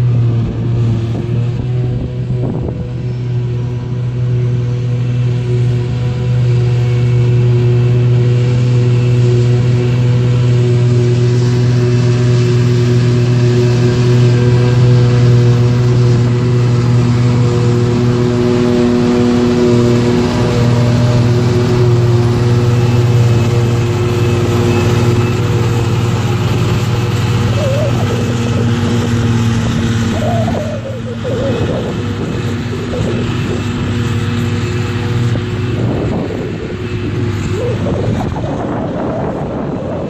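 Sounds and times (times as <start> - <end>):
heavy machine drone: 0.0 - 40.0.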